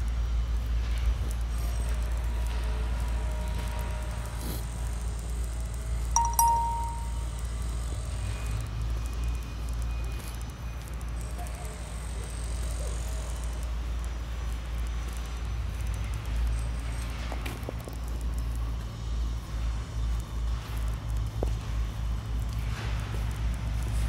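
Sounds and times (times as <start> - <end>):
short ringing tone: 6.2 - 7.3.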